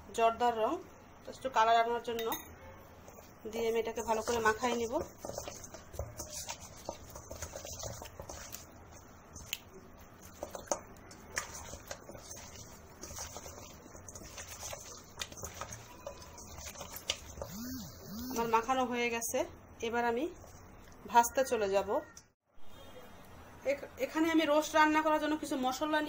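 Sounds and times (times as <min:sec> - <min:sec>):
wet squelching and patting: 0:04.1 - 0:18.4.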